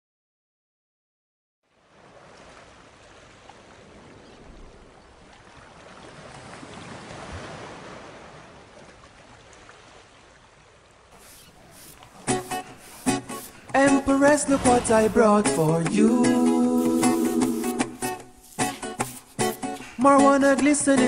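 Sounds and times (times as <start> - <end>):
rushing noise: 11.2 - 20.0.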